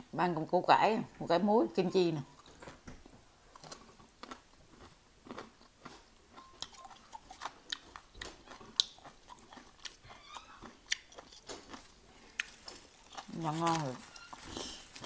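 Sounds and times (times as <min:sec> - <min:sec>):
chewing crispy food: 0:03.5 - 0:15.0.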